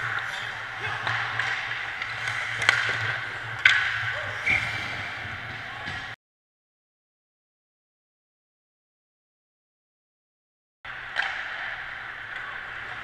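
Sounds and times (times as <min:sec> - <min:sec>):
hockey sticks and puck clacking: 0:00.0 - 0:06.2, 0:10.9 - 0:13.0
skates scraping on ice: 0:00.0 - 0:06.2.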